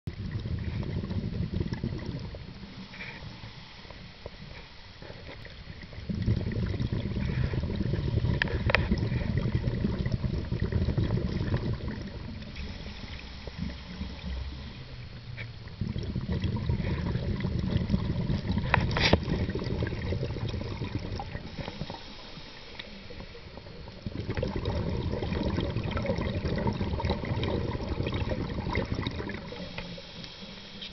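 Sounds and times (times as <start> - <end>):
exhaled bubbles rumbling: 0.1 - 3.5, 4.3 - 22.3, 22.9 - 30.1
regulator inhaling: 12.6 - 15.0, 21.4 - 23.5, 29.4 - 30.9.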